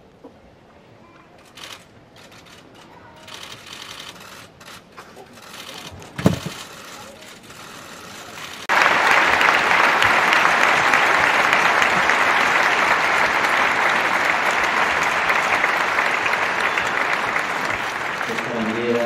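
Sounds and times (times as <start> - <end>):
large audience applauding: 8.6 - 19.0.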